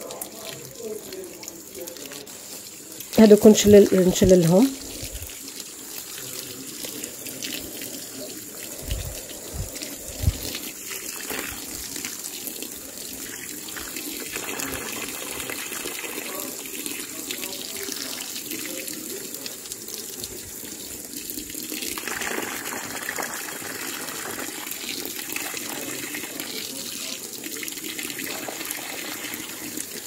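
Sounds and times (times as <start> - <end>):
water from hose splashing into tub: 0.0 - 30.0.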